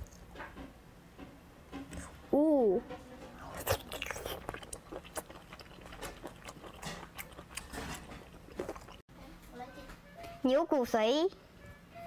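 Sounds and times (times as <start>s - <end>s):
person chewing: 3.4s - 9.0s.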